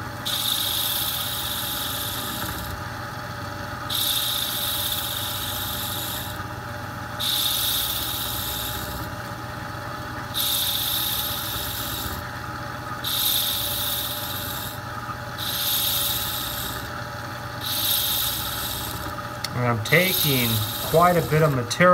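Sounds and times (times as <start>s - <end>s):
lathe humming: 0.0s - 21.9s
abrasive rasping: 17.6s - 21.9s.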